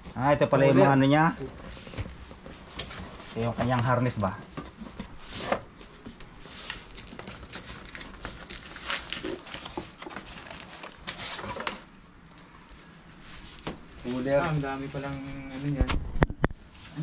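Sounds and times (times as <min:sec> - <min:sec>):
plastic packaging crinkling: 0:06.6 - 0:12.8.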